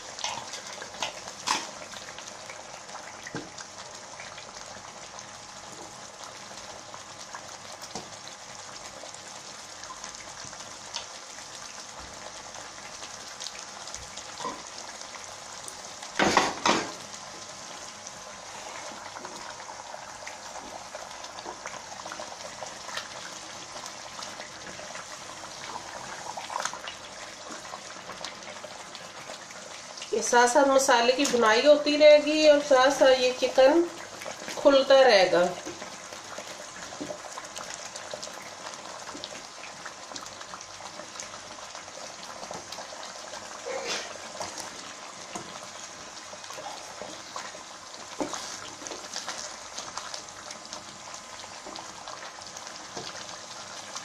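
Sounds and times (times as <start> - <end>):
food sizzling in a pot: 0.0 - 54.0
wooden spoon stirring: 46.6 - 49.4.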